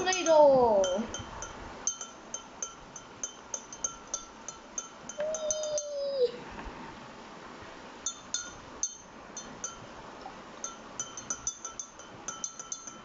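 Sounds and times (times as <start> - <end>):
spoon clinking glass mug: 0.0 - 6.0, 8.1 - 9.9, 10.6 - 13.0.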